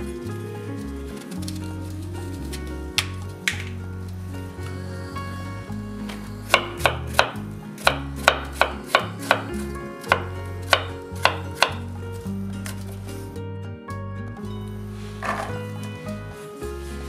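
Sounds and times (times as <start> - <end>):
knife chopping on wooden board: 6.5 - 9.5, 10.1 - 11.8.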